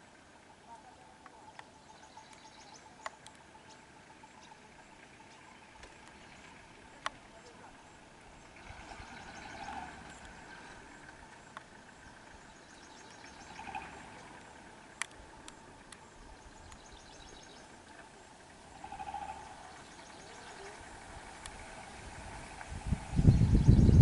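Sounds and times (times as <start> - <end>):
birds calling: 0.0 - 24.0
insects trilling: 0.1 - 23.7.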